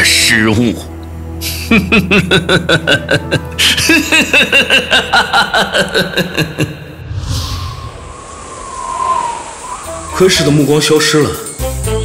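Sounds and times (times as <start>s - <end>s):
background music: 0.0s - 7.8s, 8.7s - 12.0s
man laughing mockingly: 1.4s - 7.0s.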